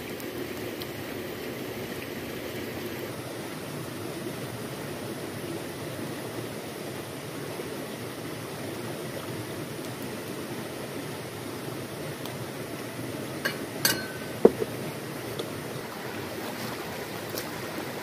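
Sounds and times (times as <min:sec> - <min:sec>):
river rushing: 0:00.0 - 0:18.0
light clink: 0:13.4 - 0:14.4.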